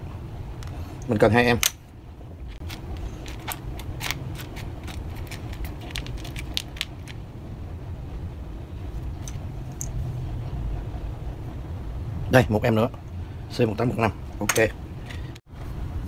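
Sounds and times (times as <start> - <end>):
small electronic parts rattling: 2.5 - 7.2.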